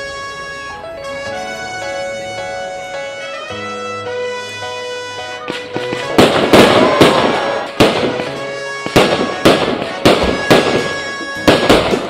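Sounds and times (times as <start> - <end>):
faint music: 0.0 - 12.0
fireworks crackling: 0.0 - 12.0
fireworks bangs: 4.3 - 12.0.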